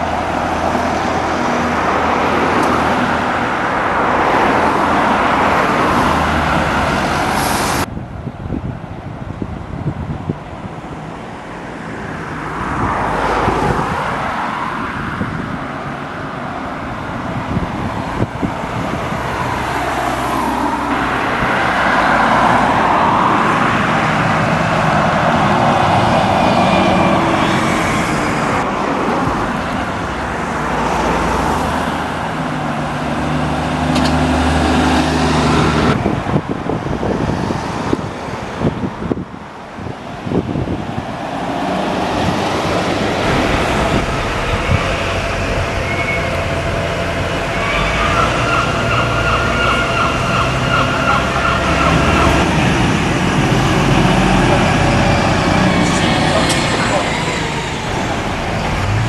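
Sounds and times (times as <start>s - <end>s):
buses and traffic passing: 0.0s - 59.0s
steady engine hum: 39.8s - 59.0s.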